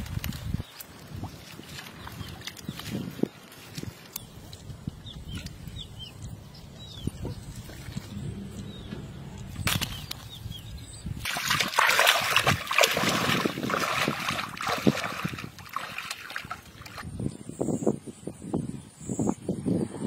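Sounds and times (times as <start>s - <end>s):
water splashing as person wades: 11.2s - 17.0s.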